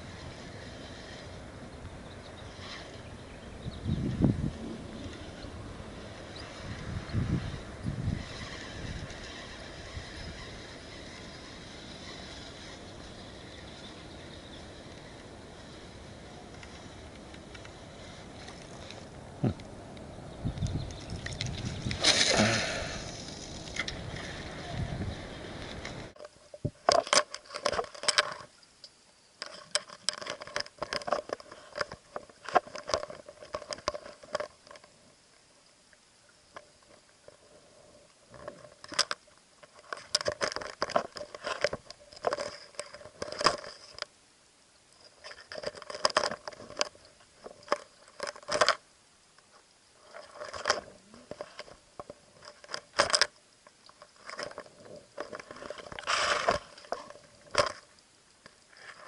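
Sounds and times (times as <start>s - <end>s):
muffled underwater clicking and rattling: 29.4s - 35.0s, 38.3s - 44.1s, 45.1s - 48.8s.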